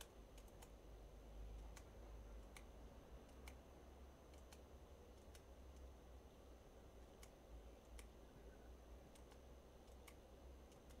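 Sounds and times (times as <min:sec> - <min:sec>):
computer mouse clicks: 0:00.0 - 0:00.8, 0:01.5 - 0:05.9, 0:07.0 - 0:08.2, 0:09.0 - 0:11.0
low steady hum: 0:00.0 - 0:11.0.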